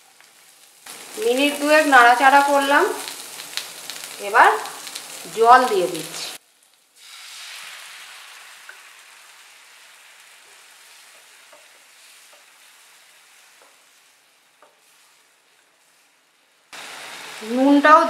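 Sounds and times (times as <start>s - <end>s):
food sizzling in frying pan: 0.0s - 18.0s.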